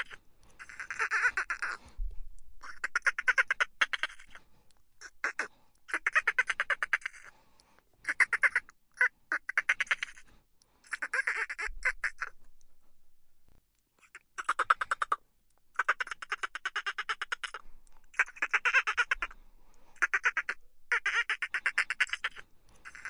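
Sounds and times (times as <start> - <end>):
dolphins chattering clicks: 20.0 - 23.0.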